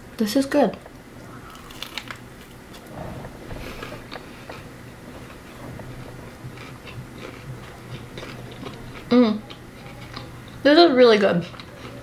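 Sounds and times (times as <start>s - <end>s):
chewing crispy chicken: 1.2s - 3.0s, 4.1s - 12.0s.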